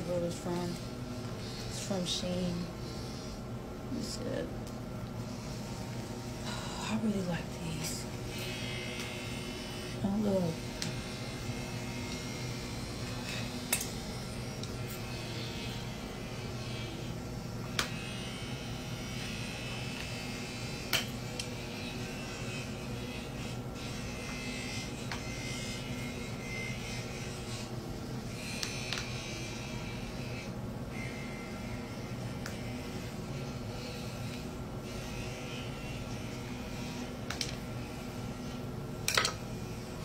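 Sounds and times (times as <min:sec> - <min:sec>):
electrical buzz: 0:00.0 - 0:40.0.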